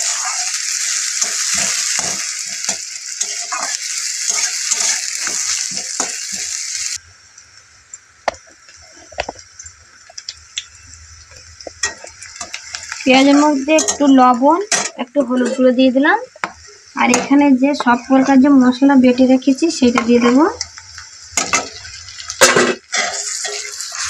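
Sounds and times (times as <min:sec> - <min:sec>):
metal spatula scraping a pan: 0:00.0 - 0:06.6, 0:21.4 - 0:24.0
onions sizzling in hot oil: 0:00.0 - 0:24.0.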